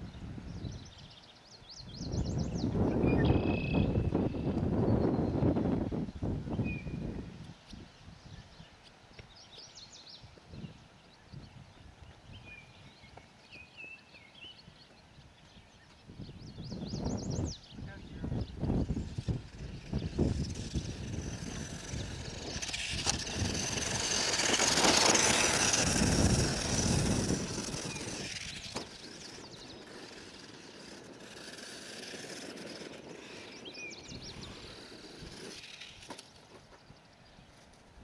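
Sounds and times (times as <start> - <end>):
birds chirping: 0.0 - 7.1, 7.7 - 37.9
rc truck motor whine: 18.4 - 36.4.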